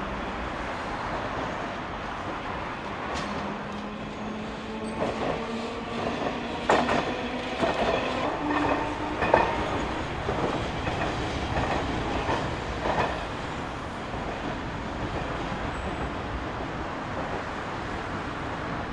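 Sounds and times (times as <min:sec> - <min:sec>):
road traffic: 0:00.0 - 0:18.9
streetcar wheels clacking on rails: 0:00.0 - 0:18.9.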